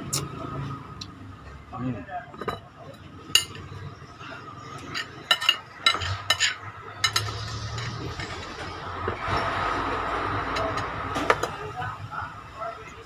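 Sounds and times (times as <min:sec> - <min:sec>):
utensil clinking against a dish: 0:02.3 - 0:03.8, 0:04.7 - 0:08.4.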